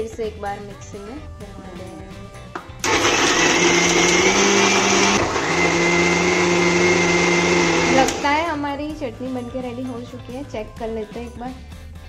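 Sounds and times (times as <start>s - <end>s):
mixer grinder whining: 2.8s - 8.4s.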